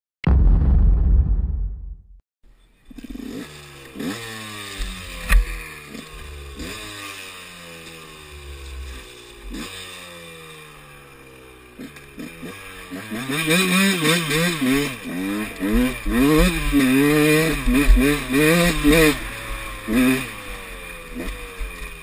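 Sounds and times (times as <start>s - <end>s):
sharp knock: 0.2s - 2.2s
motorbike engine revving: 2.9s - 22.0s.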